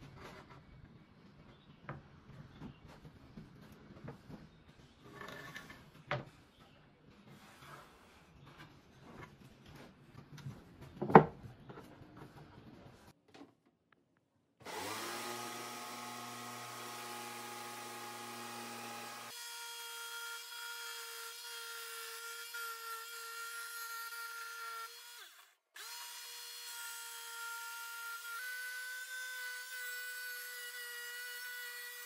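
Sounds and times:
electric planer whining: 0:14.6 - 0:21.9.

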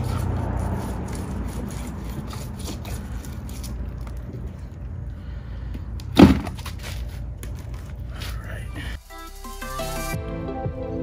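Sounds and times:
knife scraping fish: 0:00.0 - 0:04.2
loud thump: 0:06.2 - 0:06.6.

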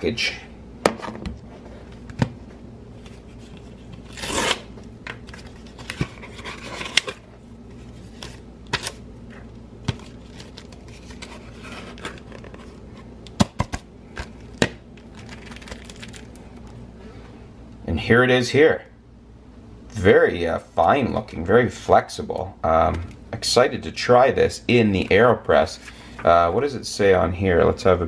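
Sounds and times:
plastic packaging rustling: 0:09.9 - 0:13.1, 0:14.2 - 0:16.7.

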